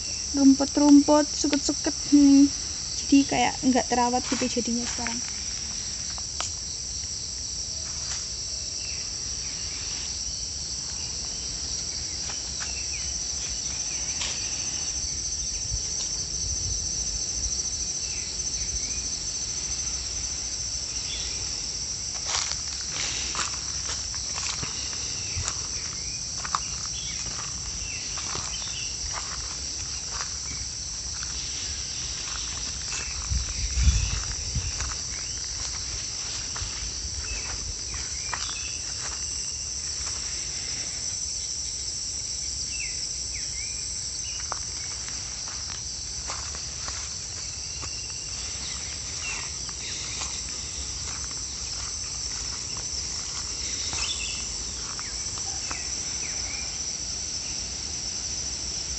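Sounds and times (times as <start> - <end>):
high-pitched insect chorus: 0.0 - 58.9
footsteps through tall grass: 4.0 - 6.7, 9.5 - 14.9, 19.3 - 40.9, 44.3 - 56.3.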